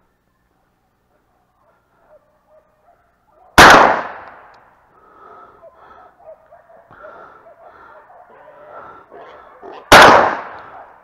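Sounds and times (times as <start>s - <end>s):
distant dogs barking: 0.3s - 3.6s, 5.0s - 11.0s
loud gunshot: 3.6s - 4.5s, 9.9s - 10.6s.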